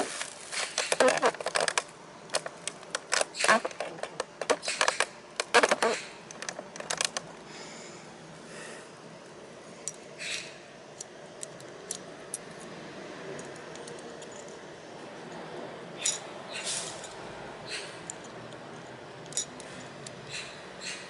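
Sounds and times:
metal clicks and scrapes of brake pad: 0.5 - 7.2.

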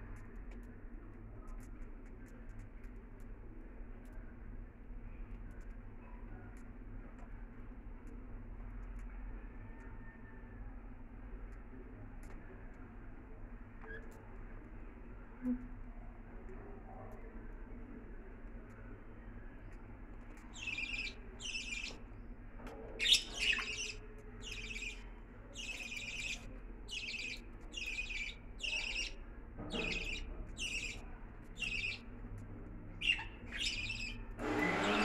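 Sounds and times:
budgerigars chirping: 20.5 - 22.0, 23.0 - 25.0, 25.6 - 31.0, 31.6 - 32.0, 33.0 - 35.0.

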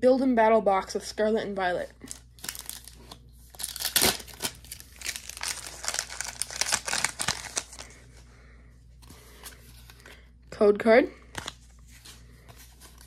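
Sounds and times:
foil wrapper tearing and crinkling: 2.1 - 8.0.

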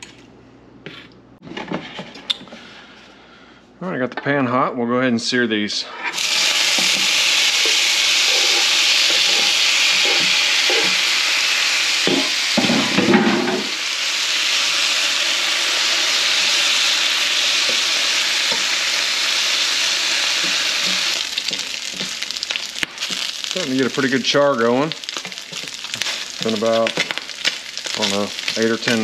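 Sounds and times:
food sizzling in oil: 6.1 - 29.0.

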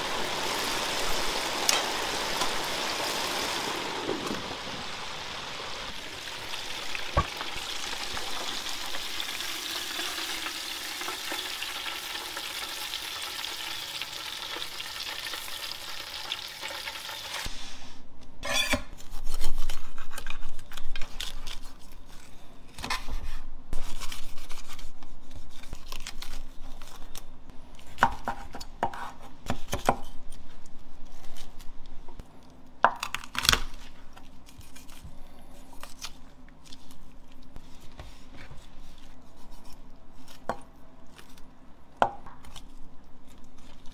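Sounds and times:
hot oil sizzling: 0.0 - 17.8
knife crunching through crispy skin: 33.0 - 37.6.

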